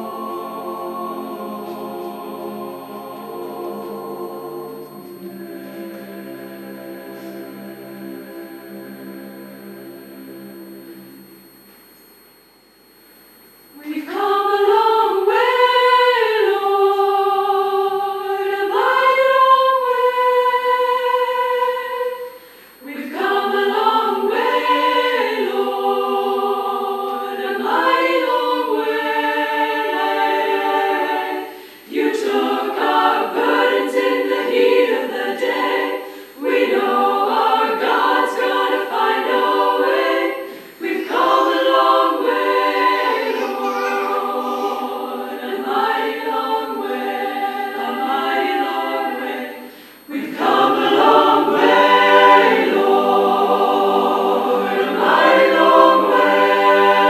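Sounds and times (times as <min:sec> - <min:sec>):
choir singing a hymn: 0:00.0 - 0:11.2, 0:13.8 - 0:57.0.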